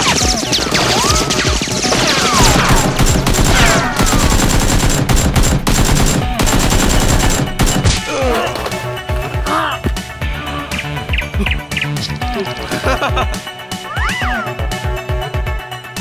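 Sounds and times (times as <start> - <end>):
rapid automatic gunfire effects: 0.0 - 7.9.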